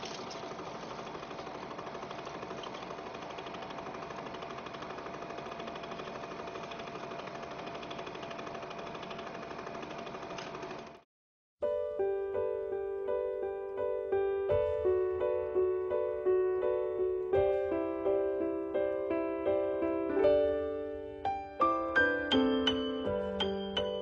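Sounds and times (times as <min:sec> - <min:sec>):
film projector clatter: 0:00.0 - 0:11.0.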